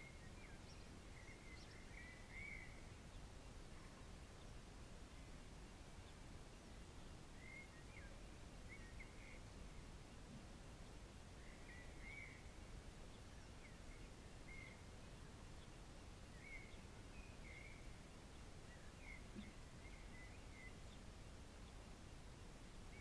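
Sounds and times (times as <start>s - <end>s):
bird chirping: 0.0s - 23.0s.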